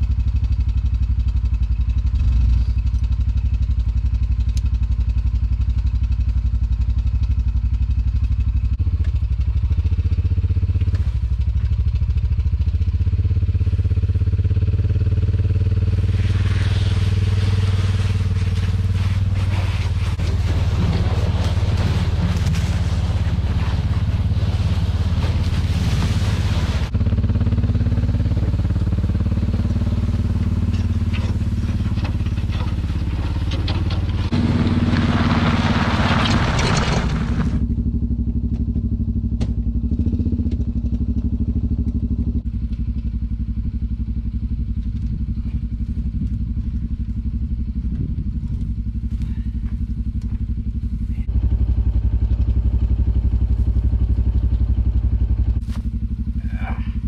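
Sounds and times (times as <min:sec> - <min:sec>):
utility vehicle engine running: 0:00.0 - 0:57.0
metal panel scraping over dirt: 0:16.1 - 0:26.9, 0:30.6 - 0:37.6.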